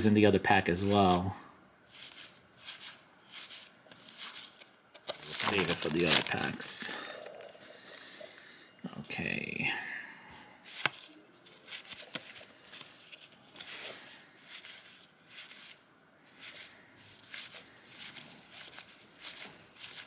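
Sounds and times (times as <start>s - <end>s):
cards being flipped through: 1.9s - 8.0s, 10.6s - 15.8s, 16.4s - 20.0s.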